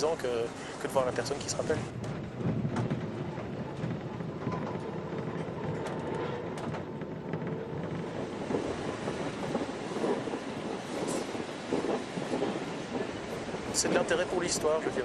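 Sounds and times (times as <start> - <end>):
electric tram rumbling on track: 0.0 - 15.0
faint tram whine: 0.0 - 15.0.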